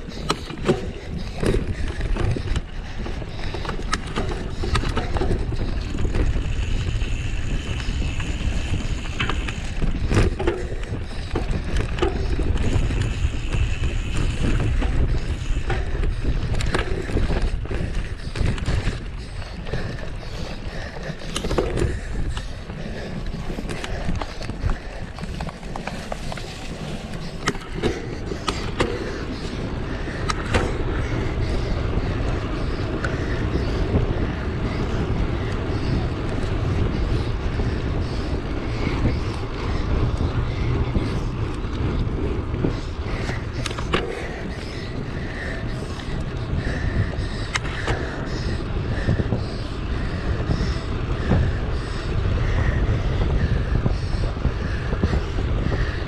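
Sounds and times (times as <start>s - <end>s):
bike clicking and rattling: 0.0s - 56.0s
wind and tyres rumbling: 0.0s - 56.0s.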